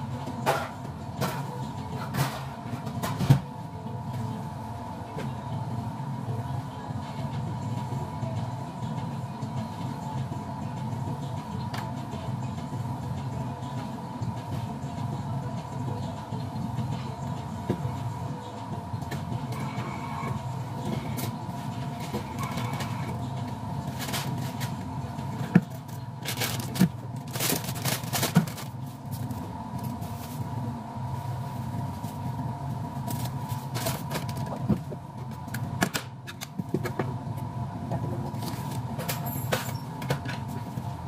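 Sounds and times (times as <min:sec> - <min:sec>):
machine hum: 0:00.0 - 0:41.0
plastic bag crackling: 0:26.2 - 0:28.8.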